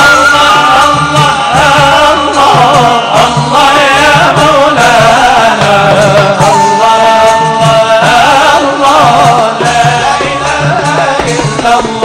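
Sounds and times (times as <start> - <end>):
reed flute melody: 0.0 - 1.7, 6.4 - 8.7
person singing devotional song: 0.0 - 12.0.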